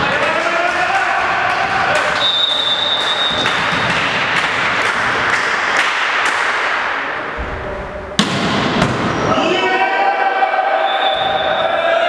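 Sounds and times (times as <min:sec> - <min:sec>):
referee's whistle: 0:02.2 - 0:03.5, 0:10.8 - 0:11.7
volleyball being hit: 0:08.2 - 0:09.2.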